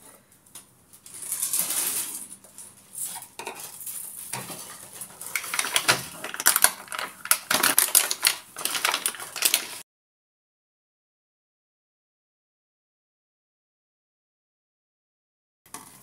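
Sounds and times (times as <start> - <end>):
plastic film crinkling: 3.0 - 9.8.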